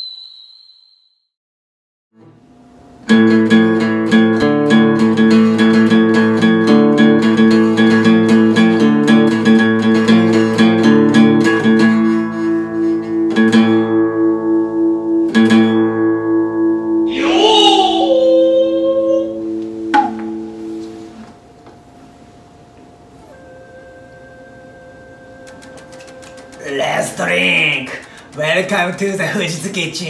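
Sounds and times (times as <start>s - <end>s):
acoustic guitar strumming: 2.2s - 21.7s, 23.2s - 29.1s
person singing sliding note: 17.1s - 20.9s.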